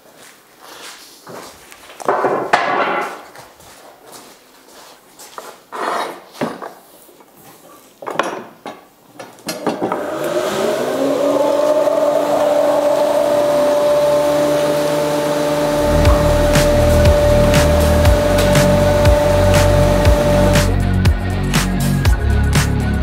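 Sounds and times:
electric motor whining: 0:09.8 - 0:20.7.

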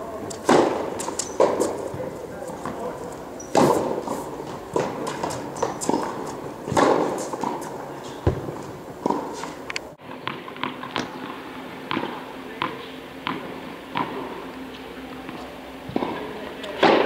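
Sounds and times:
footsteps on court: 0:00.3 - 0:09.6
racket hitting tennis ball: 0:00.3 - 0:09.6, 0:11.9 - 0:14.4, 0:15.9 - 0:17.0
ball bouncing on court: 0:08.2 - 0:09.2.

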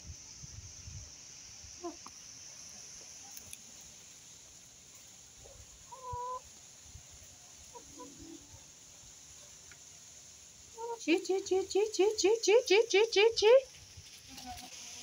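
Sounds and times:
chickens clucking: 0:01.8 - 0:03.6, 0:05.0 - 0:06.6, 0:07.5 - 0:08.7, 0:10.7 - 0:13.8
chicken call: 0:10.8 - 0:13.6.

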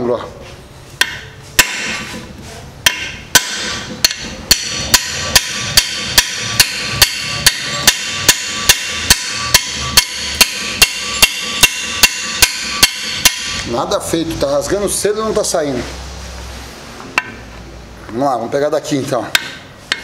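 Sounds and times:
hammer striking metal wrench: 0:01.0 - 0:02.2, 0:02.8 - 0:13.8, 0:17.2 - 0:17.4, 0:19.3 - 0:20.0.

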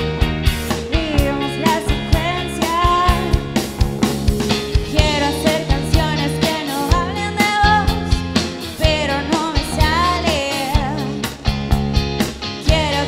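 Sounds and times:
rock band playing: 0:00.0 - 0:13.0
woman singing: 0:00.8 - 0:03.5, 0:04.9 - 0:11.4, 0:12.6 - 0:13.0.

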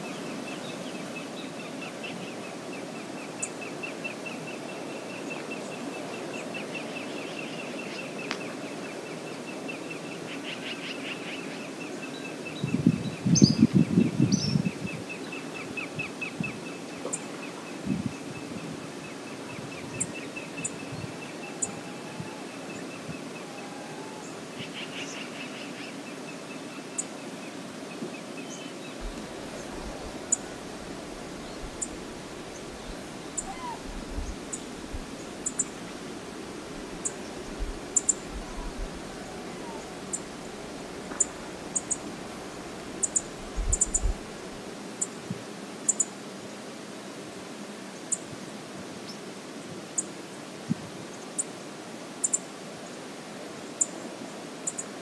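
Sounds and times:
wind: 0:00.0 - 0:55.0
river flowing: 0:16.6 - 0:50.6
birds calling: 0:28.2 - 0:44.3
low wind thump: 0:29.0 - 0:32.0.

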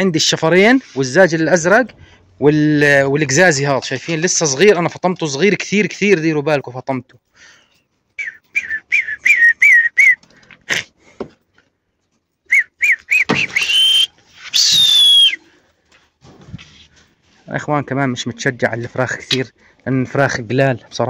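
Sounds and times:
man whistling through lips: 0:08.2 - 0:10.8, 0:12.5 - 0:15.6.

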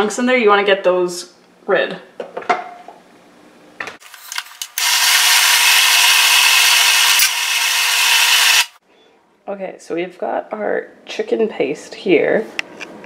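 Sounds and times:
food processor motor running: 0:04.1 - 0:08.8.

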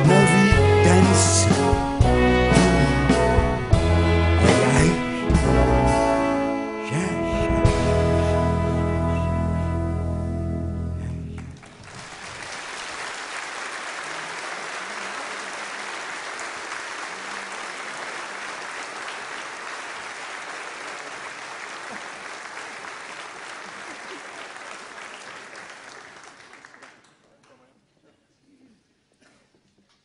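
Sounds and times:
audience applauding: 0:11.4 - 0:27.4.

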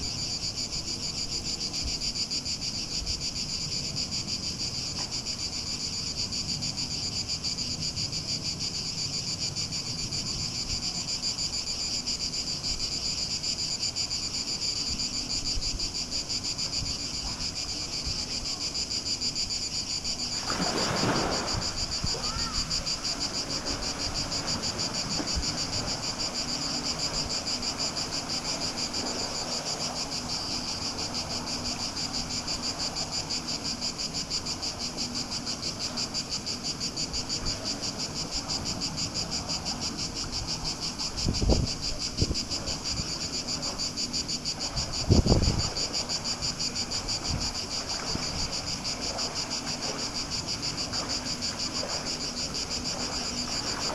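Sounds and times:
insects chirring: 0:00.0 - 0:53.9
splash into swimming pool: 0:20.3 - 0:27.2, 0:47.4 - 0:53.9.

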